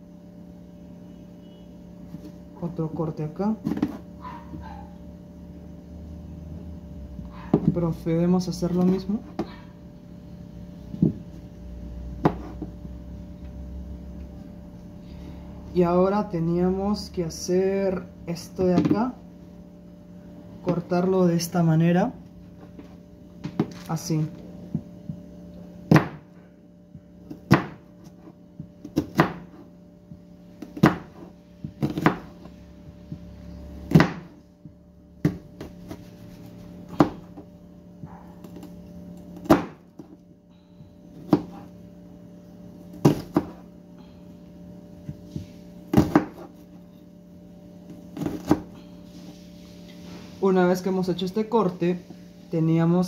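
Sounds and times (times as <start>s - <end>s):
steady low hum: 0.0s - 53.0s
knife chopping on cutting board: 12.2s - 12.8s, 25.9s - 26.3s, 27.3s - 29.7s, 30.6s - 32.3s, 33.9s - 34.4s, 35.2s - 38.7s, 39.4s - 40.2s, 41.2s - 41.7s, 42.9s - 43.6s, 45.1s - 46.6s, 48.2s - 48.7s.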